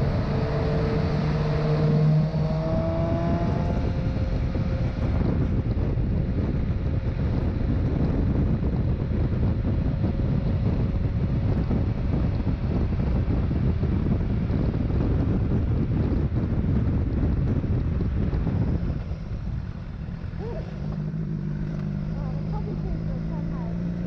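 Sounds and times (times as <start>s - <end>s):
motorcycle and road rumble: 0.0s - 24.0s
wind rushing over microphone: 0.0s - 24.0s.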